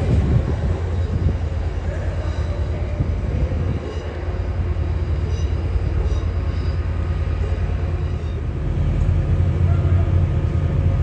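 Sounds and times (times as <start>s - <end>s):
train rumbling: 0.0s - 11.0s
high wheel squeals: 3.8s - 8.5s.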